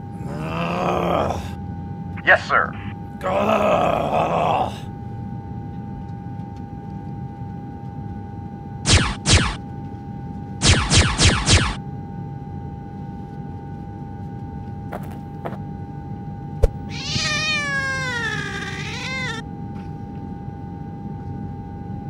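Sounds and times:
steady high hum: 0.0 - 22.0
cat meowing: 16.6 - 19.4.

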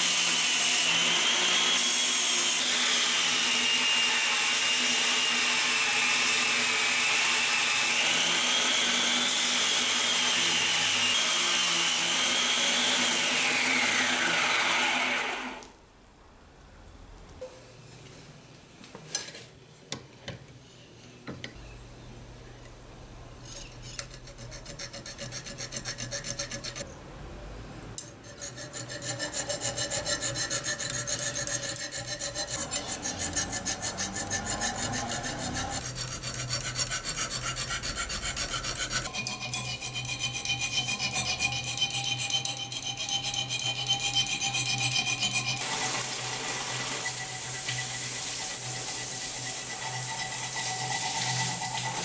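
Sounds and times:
file rasping on steel blade: 23.5 - 26.9, 28.0 - 52.0.

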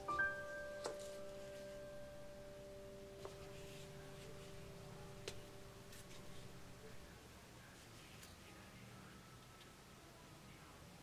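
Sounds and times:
soft piano music: 0.0 - 7.3.

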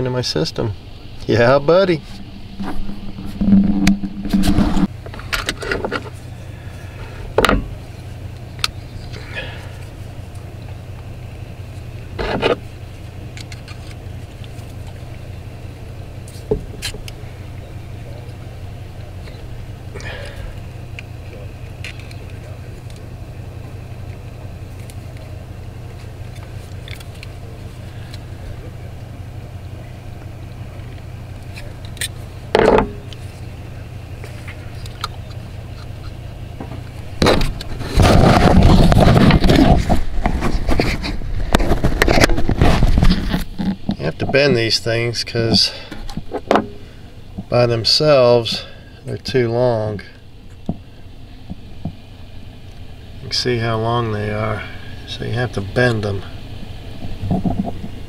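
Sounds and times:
steady low hum: 0.0 - 58.0
microphone handling noise: 2.0 - 6.2, 36.6 - 44.4.

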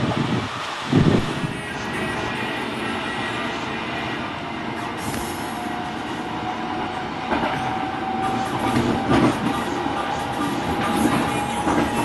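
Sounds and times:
train rumble: 0.0 - 12.0
train knocks and clatter: 4.6 - 12.0.

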